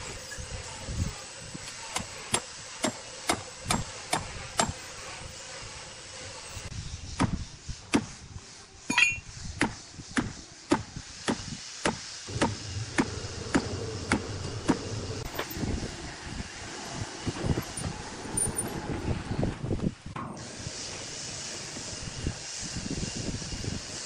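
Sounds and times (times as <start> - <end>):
metallic ping: 8.9 - 9.3
hammer blows on metal staples: 9.2 - 15.6.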